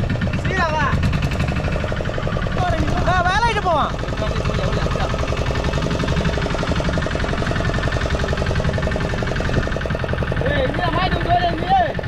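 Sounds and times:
boat engine pulsing: 0.0 - 12.0.

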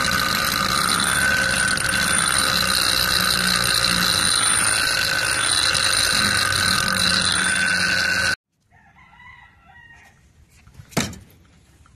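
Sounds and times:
bench grinder whining: 0.0 - 8.4
faint chicken calls: 8.6 - 10.3.

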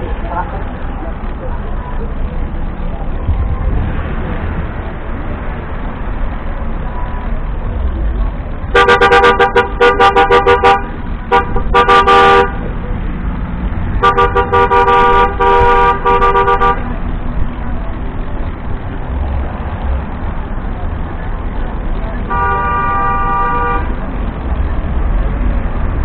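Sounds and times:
road rumble: 0.0 - 26.0
horn beeping rapidly: 8.7 - 12.6, 14.0 - 16.9, 22.3 - 23.9.

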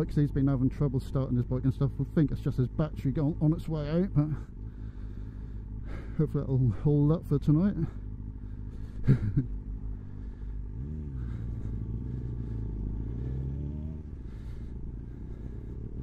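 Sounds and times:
motorcycle engine revving: 7.8 - 16.0.

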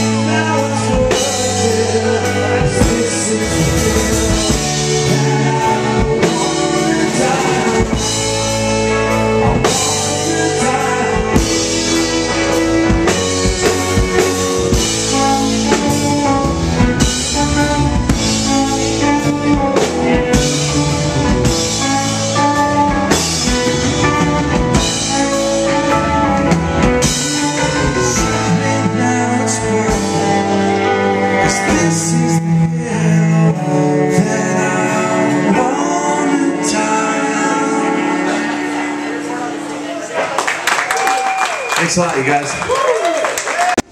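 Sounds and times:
steady drum beat: 0.0 - 30.7
live rock band playing: 0.0 - 43.9
bowed cello: 0.9 - 37.6.

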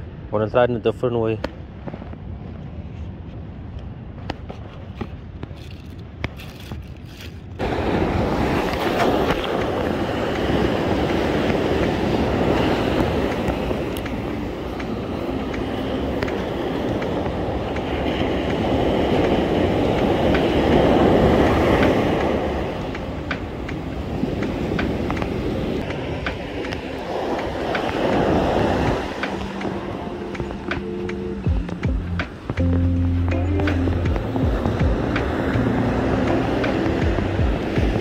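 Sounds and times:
wind buffeting microphone: 0.0 - 38.0
ocean surf breaking: 7.6 - 38.0.

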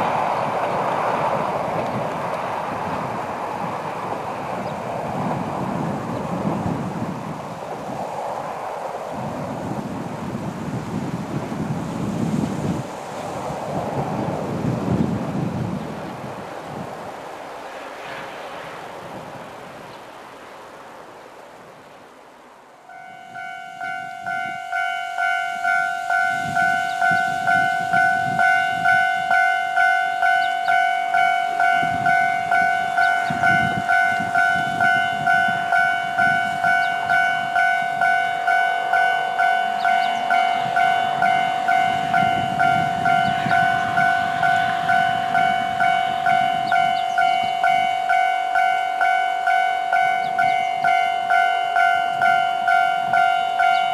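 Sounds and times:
level-crossing warning bell ringing: 22.8 - 53.9.

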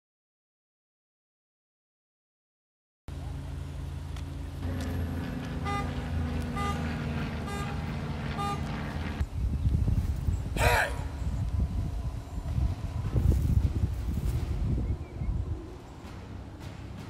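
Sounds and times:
vehicle engine running: 3.1 - 9.3
traffic noise: 3.1 - 17.0.

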